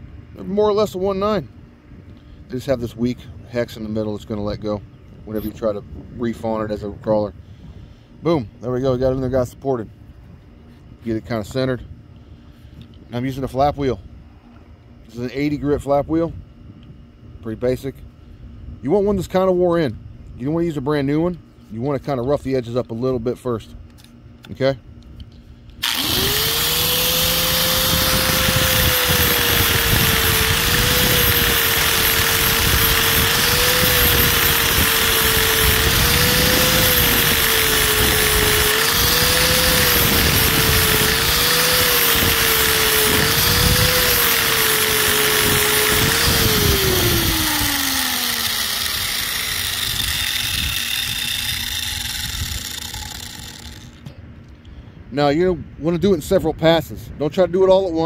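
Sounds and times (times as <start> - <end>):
angle grinder grinding rubber: 25.8 - 54.0.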